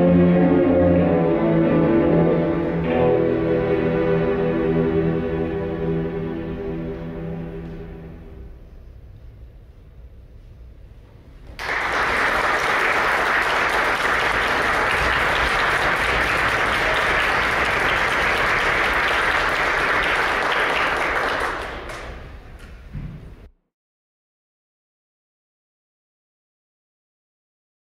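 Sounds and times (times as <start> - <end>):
audience applauding: 11.5 - 22.3.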